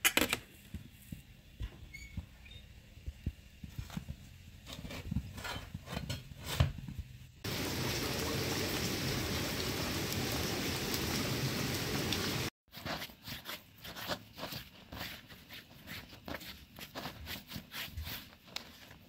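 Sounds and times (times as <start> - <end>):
rushing water: 7.4 - 12.5.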